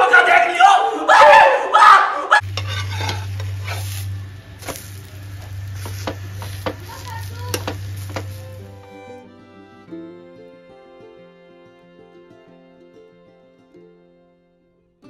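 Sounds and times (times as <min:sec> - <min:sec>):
faint sizzle: 0:02.4 - 0:08.8
metal spatula scraping a griddle: 0:02.4 - 0:08.8
steady low hum: 0:02.4 - 0:09.7.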